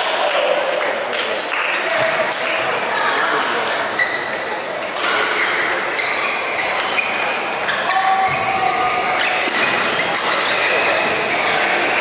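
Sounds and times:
echoing hall noise: 0:00.0 - 0:12.0
shoes squeaking on court: 0:05.1 - 0:11.8
rackets striking shuttlecock: 0:07.6 - 0:10.9.

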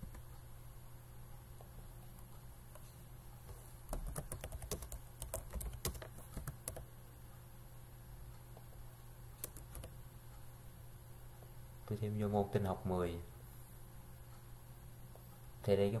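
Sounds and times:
faint low hum: 0:00.0 - 0:16.0
keyboard typing: 0:03.9 - 0:06.9, 0:09.4 - 0:10.0.

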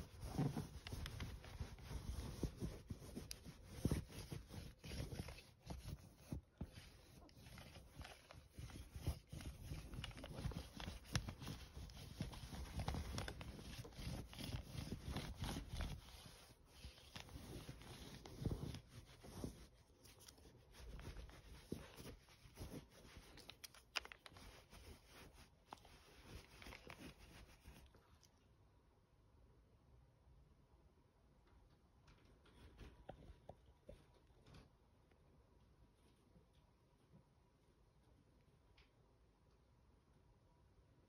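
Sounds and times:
lint roller rubbing on fabric: 0:00.0 - 0:28.0.

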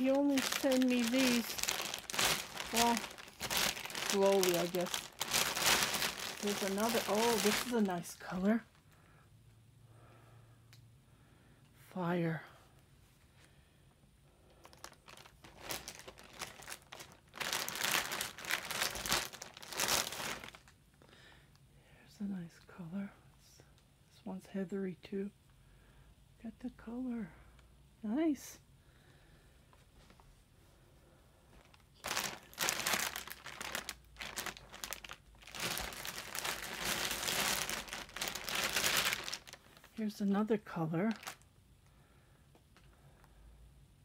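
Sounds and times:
plastic bag crinkling: 0:00.0 - 0:08.8, 0:14.6 - 0:20.8, 0:31.6 - 0:41.5.

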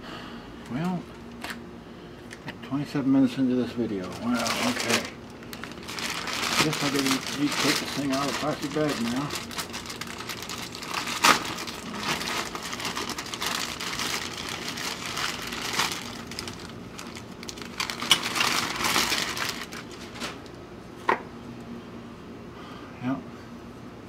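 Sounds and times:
plastic bag crinkling: 0:03.9 - 0:20.6.

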